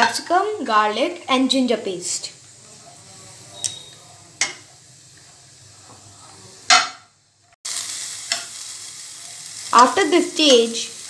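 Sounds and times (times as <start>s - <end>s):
oil sizzling: 0.0s - 11.0s
spatula scraping and knocking wok: 7.8s - 9.7s.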